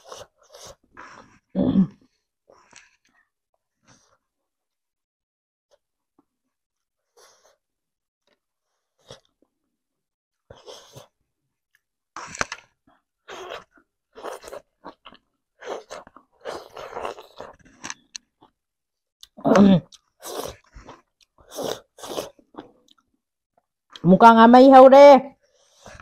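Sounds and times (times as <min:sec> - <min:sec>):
person chewing food: 0:10.5 - 0:24.0.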